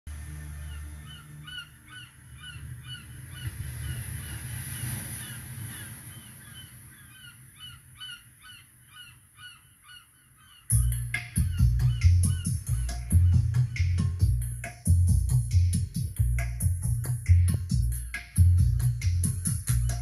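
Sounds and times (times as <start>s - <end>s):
bird calling: 0.6s - 14.2s.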